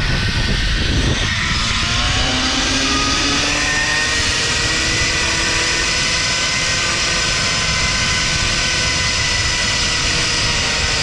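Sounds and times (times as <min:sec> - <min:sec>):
wind buffeting microphone: 0:00.0 - 0:11.0
zipline pulleys whining: 0:00.0 - 0:11.0.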